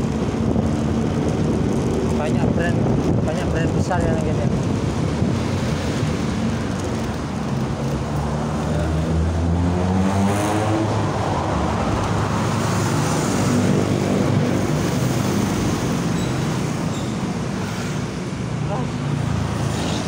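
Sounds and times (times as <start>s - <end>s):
rumble of engines and tyres: 0.0s - 20.0s
vehicle engine accelerating: 4.6s - 16.9s.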